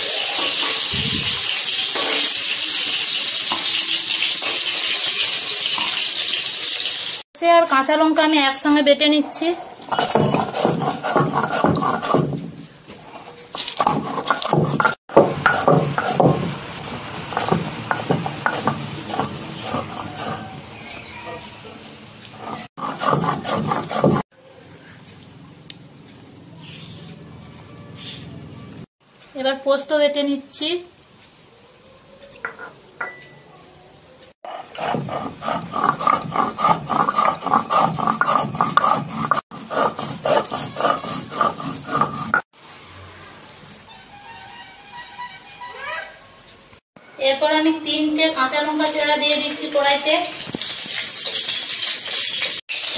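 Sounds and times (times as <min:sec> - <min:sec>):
stone grinding on stone: 0:09.2 - 0:21.5, 0:22.2 - 0:24.3, 0:34.5 - 0:42.5.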